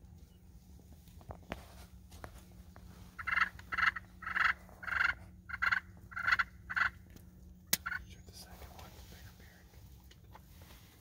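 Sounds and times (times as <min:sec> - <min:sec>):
wild turkeys yelping: 0:03.0 - 0:08.1.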